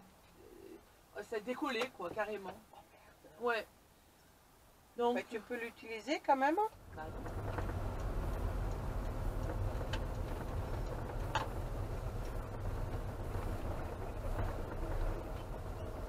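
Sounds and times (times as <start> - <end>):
engine and road rumble: 6.6 - 16.0
light clicks: 6.7 - 15.9.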